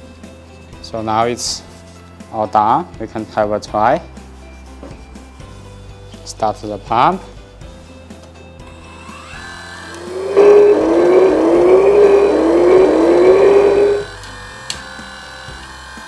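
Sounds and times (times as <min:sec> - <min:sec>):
hydraulic pump whining: 0:08.9 - 0:14.8.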